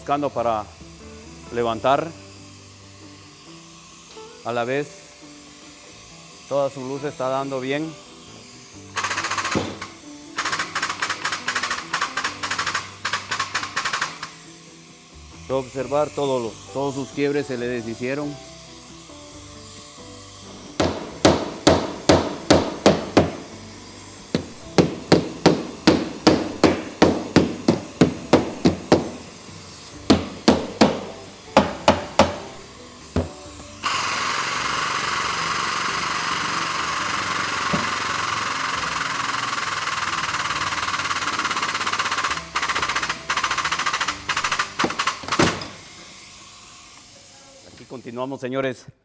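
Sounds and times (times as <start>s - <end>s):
steady hiss: 0.0s - 49.0s
hammer striking steel panel: 20.8s - 23.4s, 24.4s - 29.2s, 30.1s - 32.6s.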